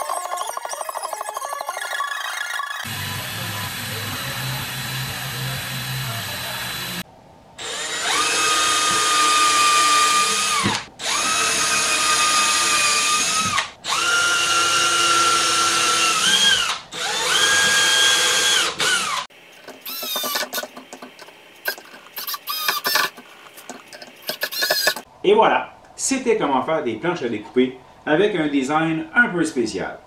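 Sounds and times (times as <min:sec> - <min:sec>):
cordless drill boring into wood: 0:02.8 - 0:07.0, 0:07.6 - 0:20.6, 0:21.7 - 0:23.2, 0:24.3 - 0:25.0.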